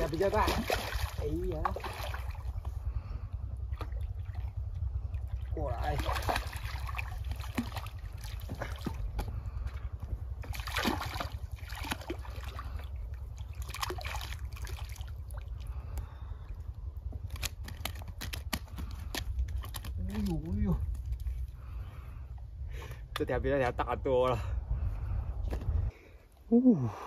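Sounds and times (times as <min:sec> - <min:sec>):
fish thrashing and splashing: 0:00.0 - 0:02.6, 0:03.6 - 0:09.3, 0:10.4 - 0:15.8.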